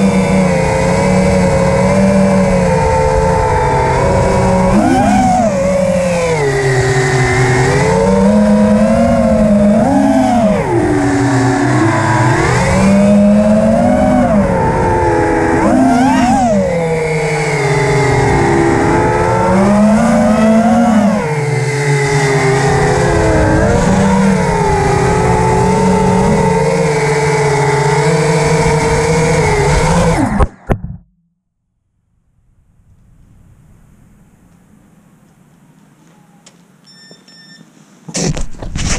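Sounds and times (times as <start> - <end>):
drone motors whining: 0.0 - 31.0.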